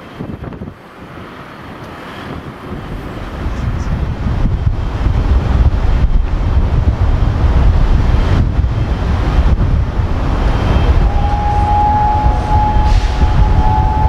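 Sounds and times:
wind buffeting microphone: 0.0 - 14.0
distant train horn: 10.7 - 14.0.

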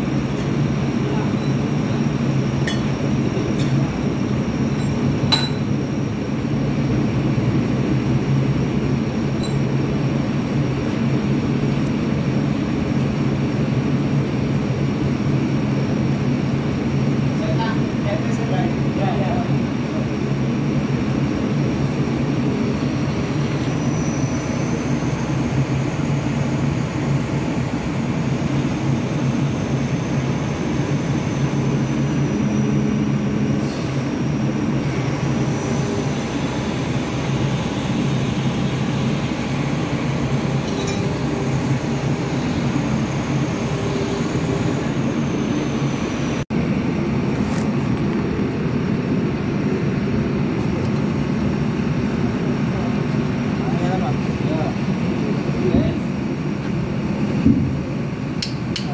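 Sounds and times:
faint high whine: 0.0 - 6.5, 22.4 - 46.4
diesel engine running: 0.0 - 58.9.

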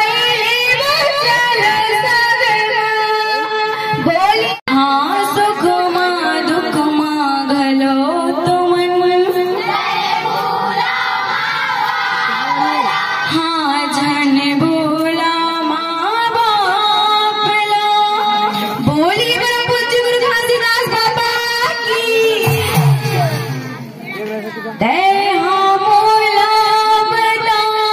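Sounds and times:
women singing in unison: 0.0 - 22.8, 24.8 - 27.9
instrumental accompaniment: 22.2 - 24.4.

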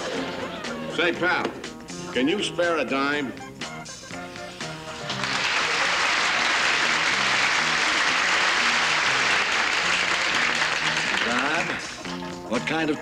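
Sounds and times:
studio audience applause: 4.8 - 12.2.

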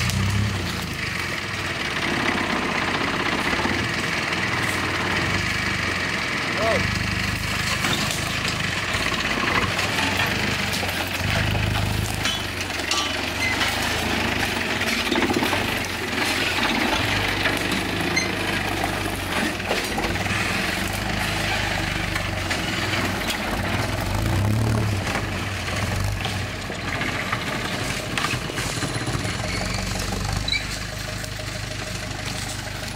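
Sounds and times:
off-road vehicle engine revving: 0.0 - 32.9
vehicle knocks and rattles: 7.4 - 32.9.

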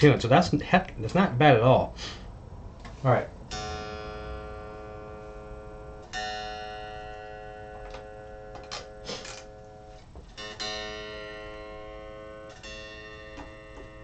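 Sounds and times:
electric guitar chord ringing: 3.4 - 14.0.

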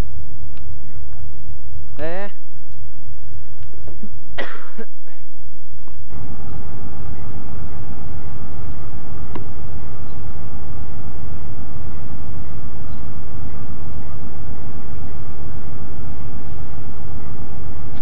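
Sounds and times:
faint steady whine: 0.0 - 18.0
locomotive engine rumble: 6.0 - 18.0.

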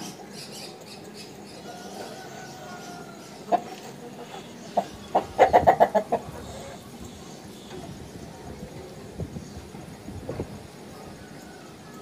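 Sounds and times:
chicken clucking: 1.6 - 7.1.

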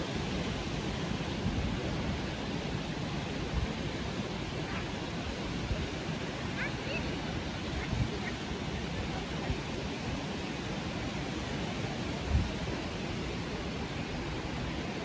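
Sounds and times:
surf at the shore: 0.0 - 15.0
wind: 0.0 - 15.0
wind thuds on microphone: 12.1 - 13.3.

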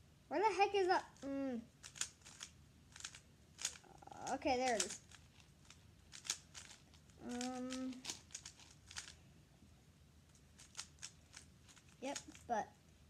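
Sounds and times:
puzzle cube layers clicking: 1.2 - 9.2
child humming: 7.2 - 8.1.

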